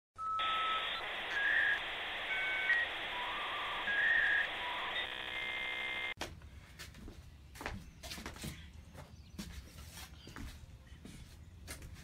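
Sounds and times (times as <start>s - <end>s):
buzzy held tone: 0.4s - 6.2s.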